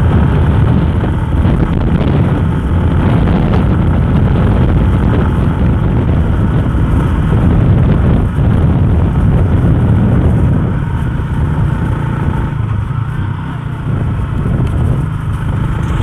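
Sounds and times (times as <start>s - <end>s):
motorcycle engine running: 0.0s - 16.0s
wind on the microphone: 0.0s - 16.0s.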